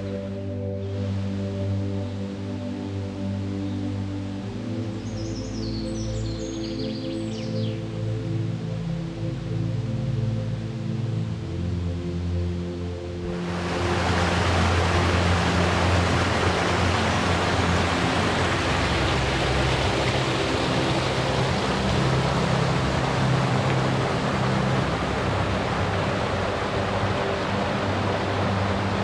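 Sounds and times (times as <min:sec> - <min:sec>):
rushing water: 0:00.0 - 0:29.0.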